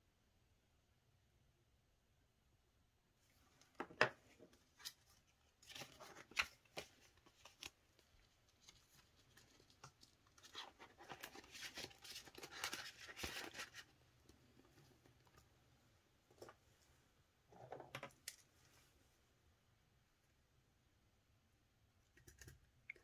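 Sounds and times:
banknotes and plastic rustling: 4.7 - 13.9.

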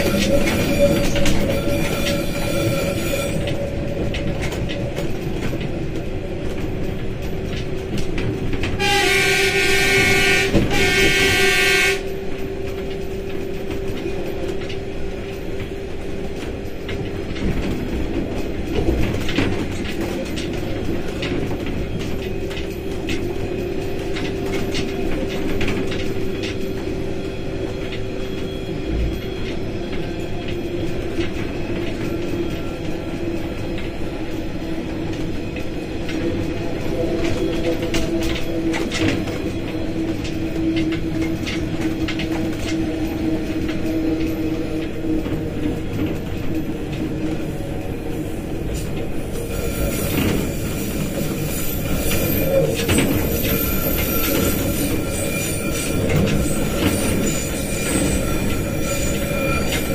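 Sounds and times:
train running on rails: 0.0 - 59.9
locomotive horn blasts: 8.8 - 12.2.

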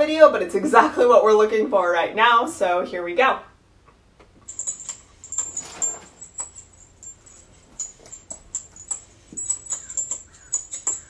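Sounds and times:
metal dog tags jingling: 4.3 - 11.0.

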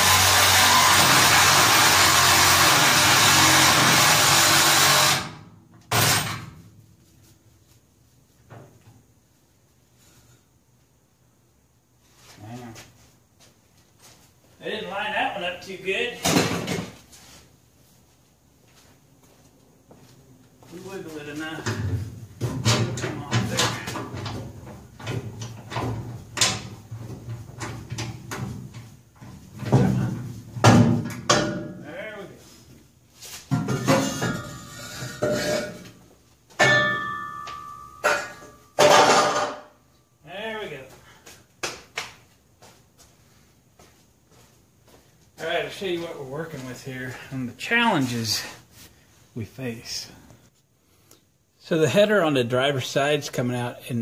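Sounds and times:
angle grinder cutting metal pipe: 0.0 - 5.3
metal clunks and knocks: 21.6 - 31.8, 33.5 - 35.9, 36.6 - 39.7.

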